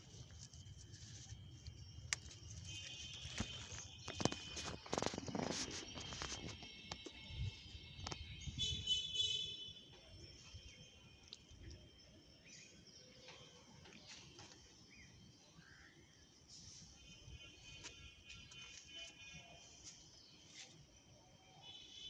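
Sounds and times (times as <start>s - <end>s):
faint bird chirps: 7.4s - 22.0s.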